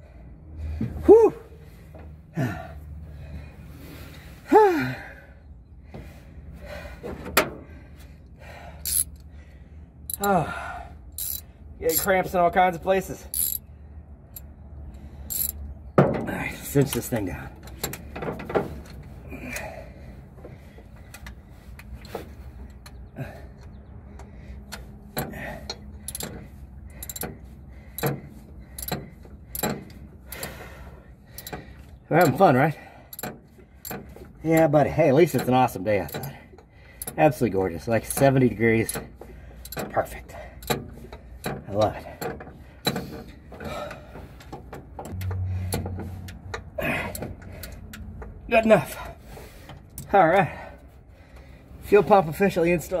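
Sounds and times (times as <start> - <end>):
man groaning with effort: 1.0 - 1.6, 2.3 - 2.8, 4.5 - 5.2, 10.2 - 10.9
man sighing: 2.3 - 2.9, 4.4 - 5.3, 19.3 - 20.1
metallic wrench clicks: 8.8 - 9.3, 11.2 - 12.1, 13.3 - 13.6, 15.3 - 15.6, 25.7 - 26.4, 27.0 - 27.3, 28.8 - 29.8.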